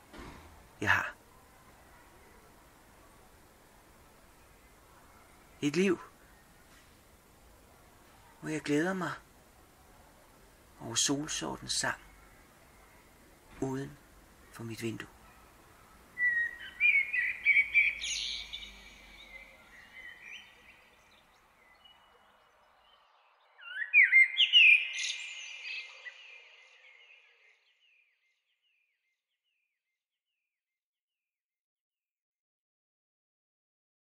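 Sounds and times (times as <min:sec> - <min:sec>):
blackbird singing: 0:15.1 - 0:30.5.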